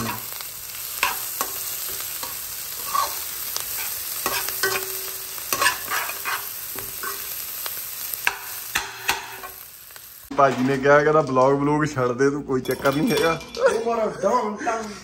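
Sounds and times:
metal utensil scraping pan: 0:00.0 - 0:07.4, 0:08.2 - 0:09.6
onions sizzling in oil: 0:00.0 - 0:10.6.

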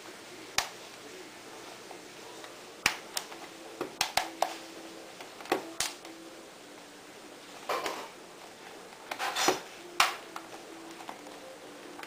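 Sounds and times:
plastic clicks and snaps: 0:02.4 - 0:04.6, 0:05.3 - 0:06.1.

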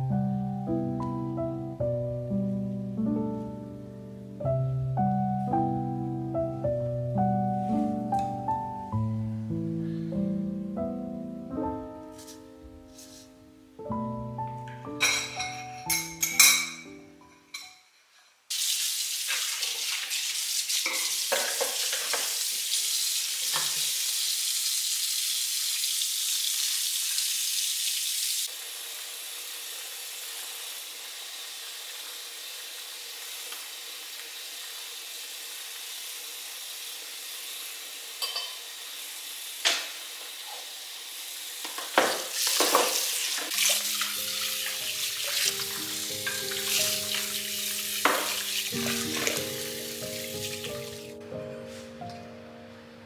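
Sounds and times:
soft music: 0:00.0 - 0:18.0, 0:43.5 - 0:53.0
dishes knocking and clattering: 0:15.0 - 0:16.8, 0:20.9 - 0:22.3, 0:38.2 - 0:38.6, 0:41.7 - 0:43.0, 0:48.0 - 0:48.4
tap running into sink: 0:20.8 - 0:22.4, 0:23.4 - 0:24.0, 0:39.6 - 0:40.5, 0:41.6 - 0:47.4, 0:48.0 - 0:49.6.

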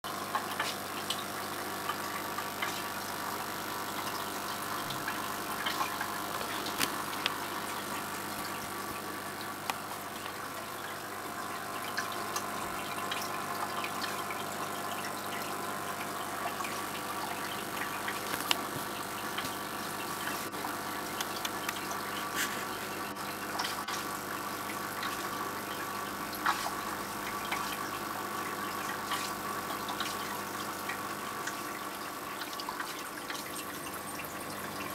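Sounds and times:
aquarium filter motor hum: 0:00.1 - 0:34.9
water trickling: 0:00.1 - 0:34.9
small clicks: 0:05.7 - 0:07.4, 0:18.1 - 0:18.8.

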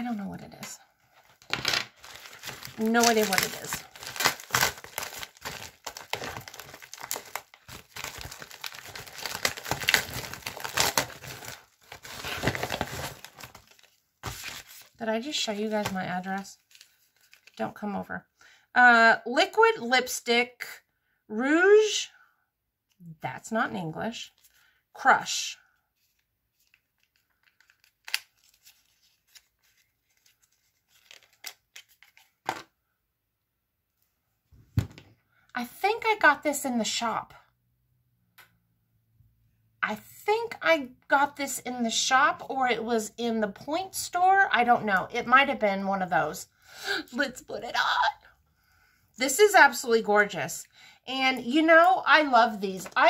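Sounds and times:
package crinkling and tearing: 0:01.3 - 0:15.0, 0:16.6 - 0:17.6, 0:26.0 - 0:32.6.

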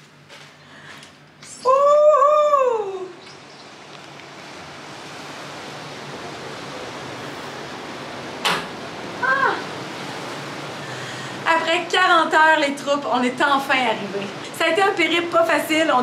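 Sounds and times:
wind: 0:00.0 - 0:16.0
sea surf: 0:02.4 - 0:16.0
woman crying out in delight: 0:09.2 - 0:09.6.

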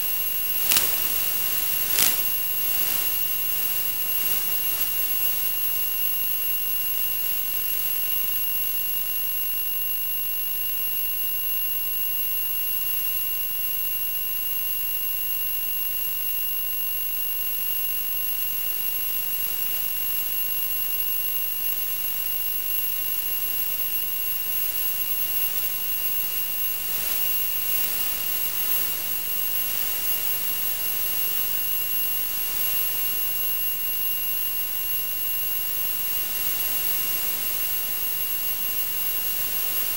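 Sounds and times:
faint hum: 0:00.0 - 0:08.3
static hiss: 0:00.0 - 0:08.8, 0:21.8 - 0:39.9
constant high-pitched tone: 0:00.0 - 0:16.0, 0:16.7 - 0:39.9.

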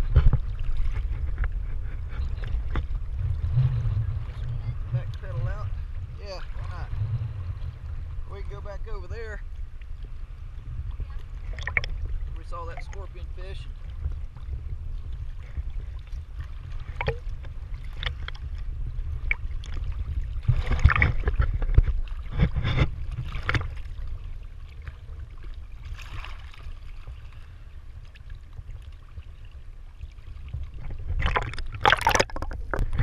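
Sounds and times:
underwater rumble of water: 0:00.0 - 0:33.0
diver exhaling bubbles: 0:31.1 - 0:33.0.

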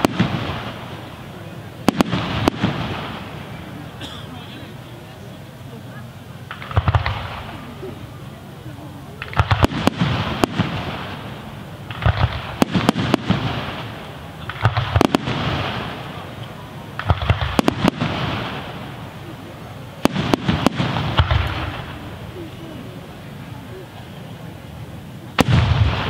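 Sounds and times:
firework hiss: 0:00.0 - 0:26.0
firework shells bursting: 0:06.4 - 0:07.8, 0:09.2 - 0:19.2.

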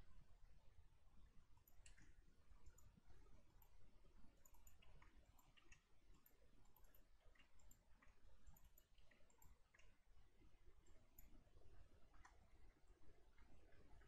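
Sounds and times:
low room hum: 0:00.0 - 0:14.0
mouse clicks: 0:01.6 - 0:03.0, 0:03.6 - 0:03.8, 0:04.4 - 0:10.0.

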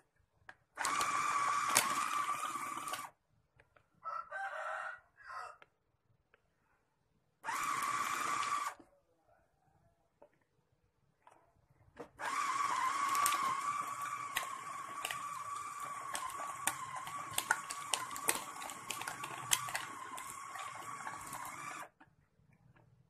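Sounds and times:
ice cubes clacking against blades: 0:00.8 - 0:03.0, 0:12.5 - 0:21.9
food chopper motor whining: 0:00.8 - 0:03.1, 0:07.4 - 0:08.8, 0:12.2 - 0:22.0.

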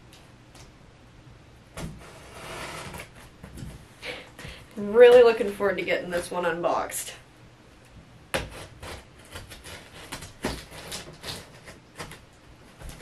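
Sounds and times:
box cutter scraping cardboard: 0:01.8 - 0:03.5, 0:08.3 - 0:13.0.

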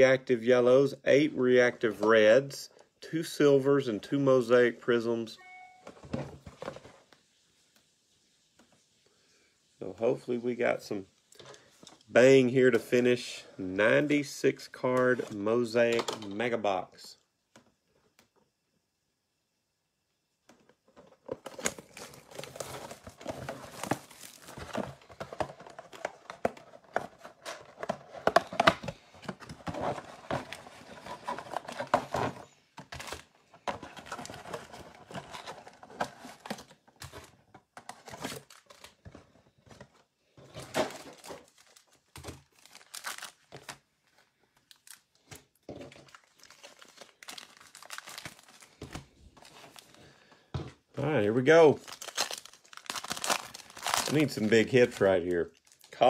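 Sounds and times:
shrink wrap crinkling and tearing: 0:21.4 - 0:29.1, 0:40.6 - 0:45.4, 0:46.0 - 0:50.0, 0:51.0 - 0:56.0.

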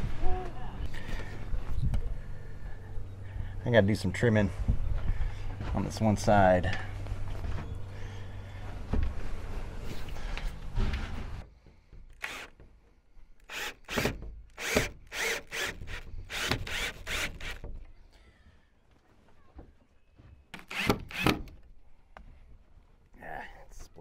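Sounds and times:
cordless drill driving screw into wood: 0:12.1 - 0:12.7, 0:13.4 - 0:17.7, 0:20.5 - 0:21.6.

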